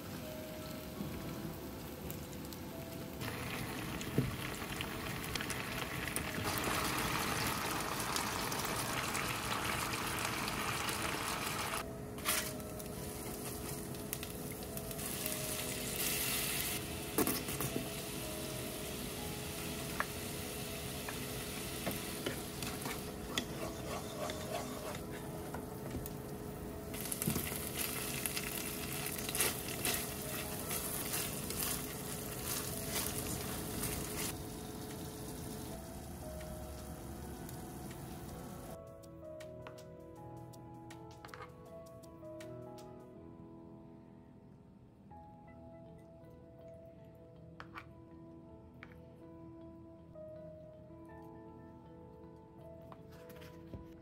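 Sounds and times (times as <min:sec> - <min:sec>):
sauce sizzling in frying pans: 0:03.2 - 0:11.8, 0:12.4 - 0:23.4, 0:26.9 - 0:38.8.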